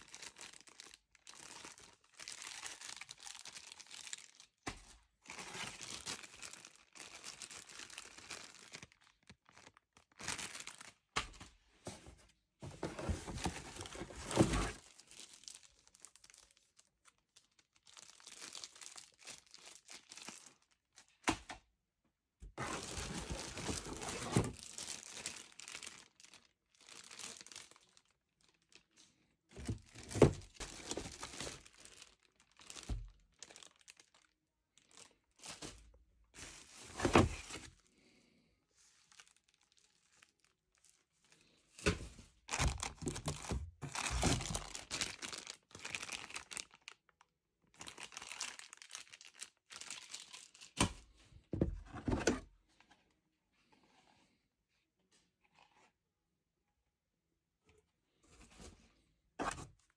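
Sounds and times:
plastic bags crinkling: 0.0 - 11.2, 12.8 - 20.9, 22.6 - 29.0, 29.6 - 37.8, 39.0 - 41.1, 42.4 - 50.8.

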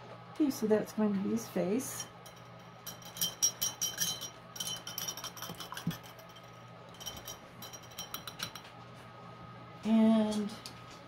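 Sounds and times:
paintbrush clinking in glass jar: 2.0 - 8.7.

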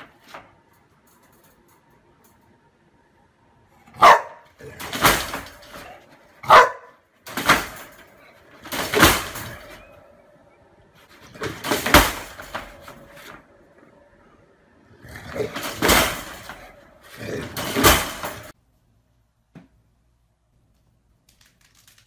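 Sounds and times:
dog barking: 3.9 - 4.7, 6.4 - 7.0.

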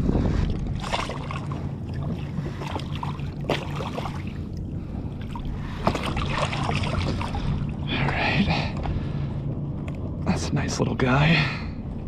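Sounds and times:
steady low rumble: 0.0 - 12.0
water splashing and dripping: 5.2 - 7.6.

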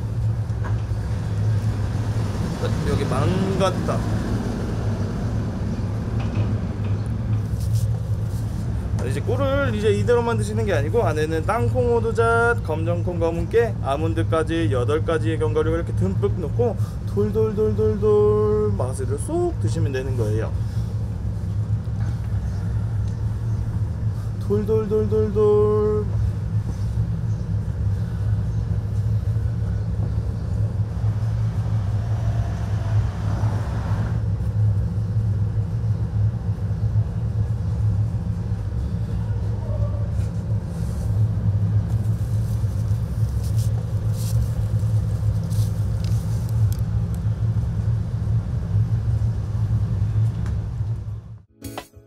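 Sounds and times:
low rumble: 0.0 - 51.5
music: 51.5 - 52.0.

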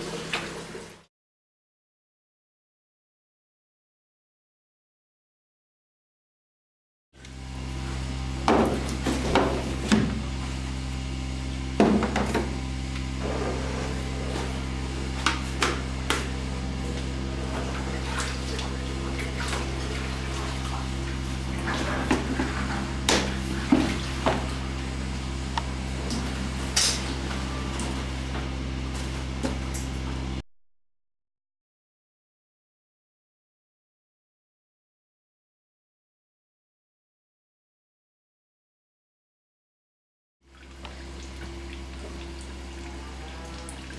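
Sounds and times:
steady low hum: 7.2 - 30.4, 40.5 - 43.9.

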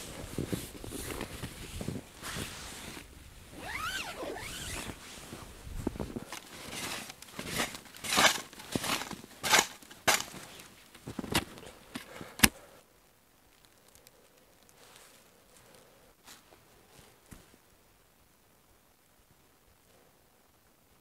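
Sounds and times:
tent zipper being pulled: 0.0 - 10.6
nylon and clothing rustling: 0.0 - 12.5.

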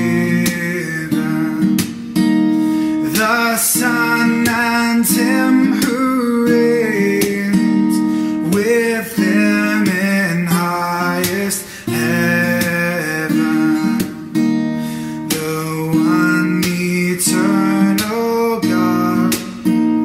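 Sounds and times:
acoustic guitar strumming: 0.0 - 20.0
person singing a hymn: 3.1 - 7.7.

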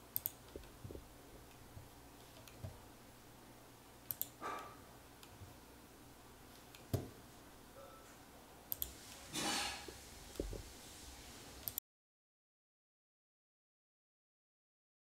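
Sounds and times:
computer mouse clicks: 0.1 - 0.7, 2.2 - 2.8, 4.0 - 5.4, 8.7 - 9.0, 11.6 - 11.8
rustling noise: 8.9 - 11.6.

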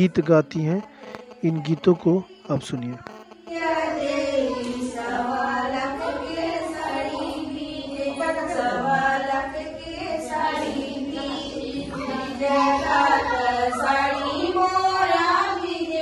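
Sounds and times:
women singing folk song: 3.4 - 16.0.

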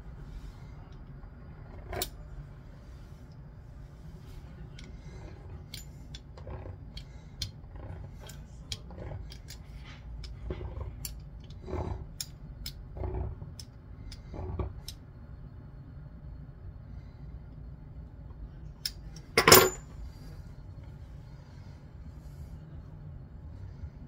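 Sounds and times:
steady low hum: 0.0 - 24.0
soft rub of dough: 2.2 - 5.6.

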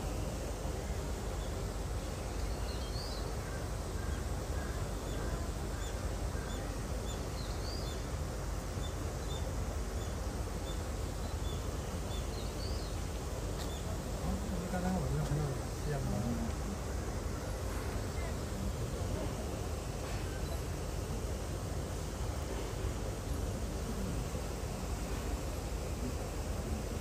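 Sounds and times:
small birds chirping: 0.7 - 16.1.

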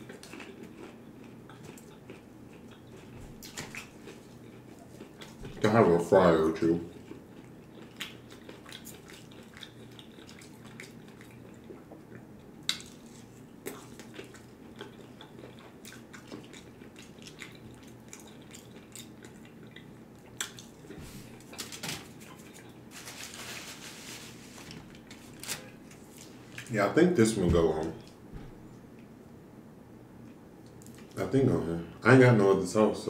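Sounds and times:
quiet chewing: 0.0 - 5.7, 6.9 - 23.1, 24.6 - 26.7
paper crinkling: 21.4 - 26.4.

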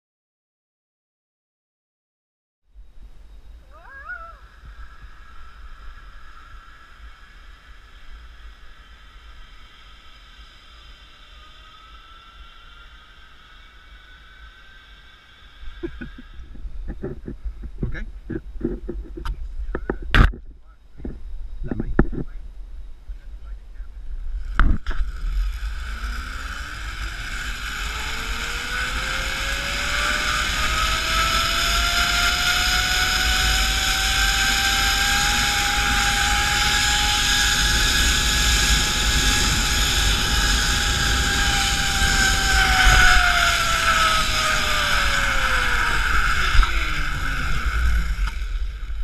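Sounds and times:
pulleys whining along steel cable: 3.7 - 17.1, 24.4 - 49.0
wind rumble on microphone: 15.5 - 49.0.

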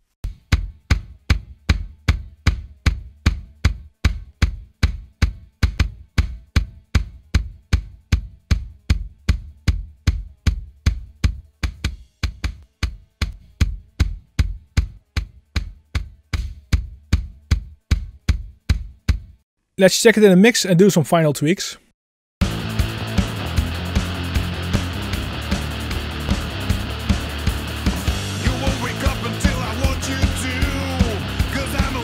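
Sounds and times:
kick drum pattern: 0.2 - 19.4.

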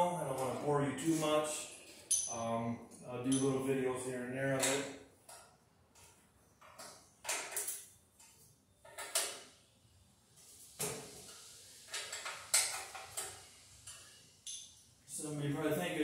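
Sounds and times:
hand tools clinking on metal: 1.8 - 2.6, 3.2 - 3.6.

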